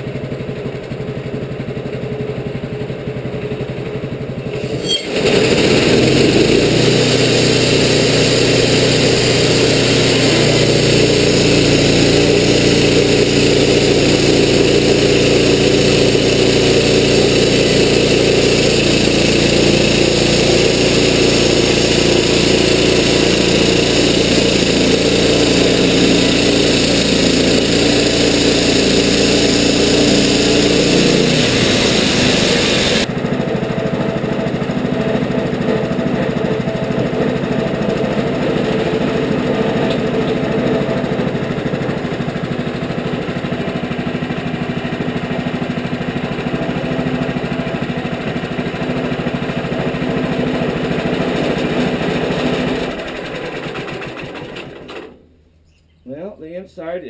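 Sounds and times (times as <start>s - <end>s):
sawmill engine running: 0.0s - 55.3s
band blade cutting log: 18.4s - 33.1s.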